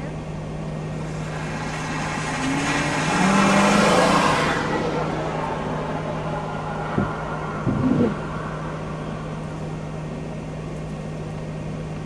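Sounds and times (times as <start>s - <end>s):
steady low hum: 0.0s - 12.0s
vehicle passing close by: 0.9s - 10.1s.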